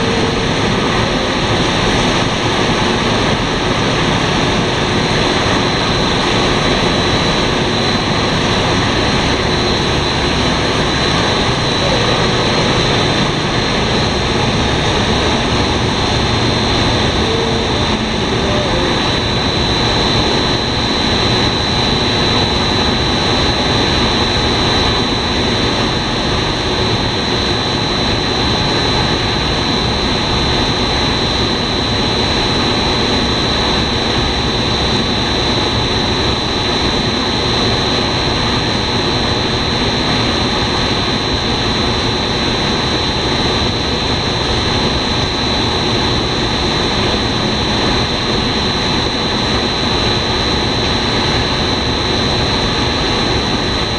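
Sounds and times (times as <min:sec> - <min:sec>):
high machine whine: 0:00.0 - 0:53.9
machine drone: 0:00.0 - 0:53.9.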